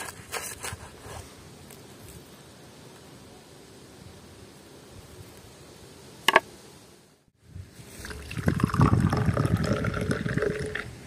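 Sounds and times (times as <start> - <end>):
water glugging into container: 8.0 - 10.9.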